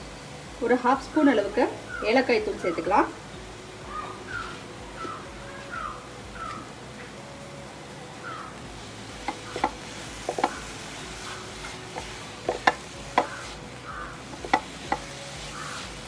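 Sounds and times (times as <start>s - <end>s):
low hiss: 0.0s - 16.0s
spatula knocking against pan: 9.2s - 10.6s, 12.0s - 13.4s, 14.4s - 15.1s.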